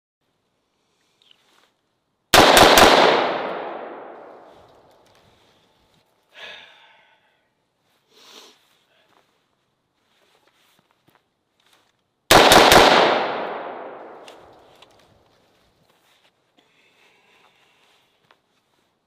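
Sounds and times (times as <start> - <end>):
rifle shots echoing: 2.3 - 4.7, 12.3 - 14.6.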